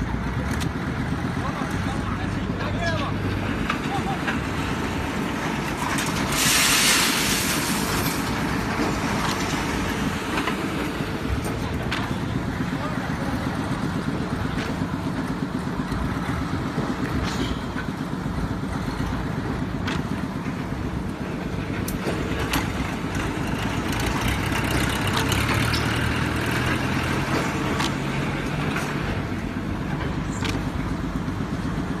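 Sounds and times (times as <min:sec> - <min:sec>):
concrete pump engine running: 0:00.0 - 0:32.0
loud hiss: 0:06.3 - 0:08.0.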